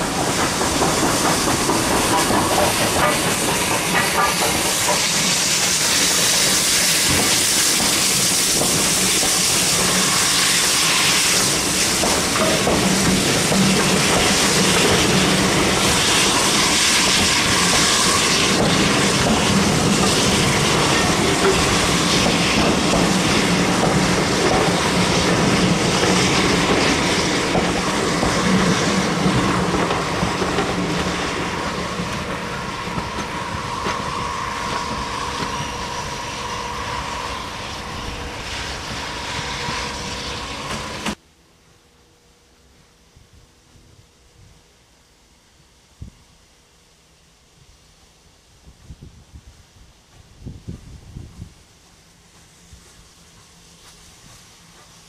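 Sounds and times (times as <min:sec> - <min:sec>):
train wheels clattering on rails: 0:00.0 - 0:36.7
steam hissing: 0:00.0 - 0:41.2.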